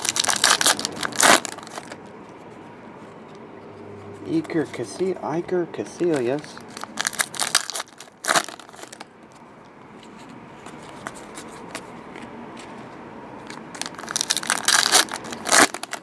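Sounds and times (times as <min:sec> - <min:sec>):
foil wrapper crinkling and tearing: 0:00.0 - 0:02.0, 0:06.1 - 0:09.0, 0:13.5 - 0:16.0.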